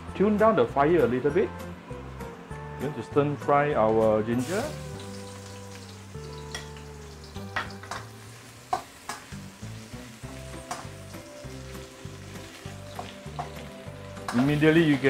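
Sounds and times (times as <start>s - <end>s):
ginger and garlic sizzling in oil: 4.4s - 15.0s.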